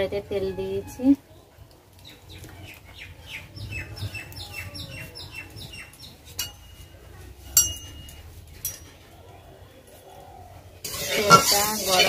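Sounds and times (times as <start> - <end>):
sharp metallic clinks: 6.4 - 9.0.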